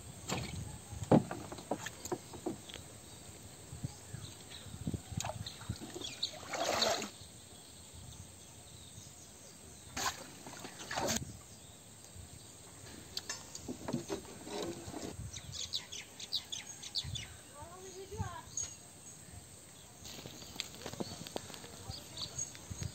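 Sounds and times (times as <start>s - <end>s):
small birds chirping: 0.4s - 22.9s
pond water splashes: 5.2s - 7.2s, 9.9s - 11.2s.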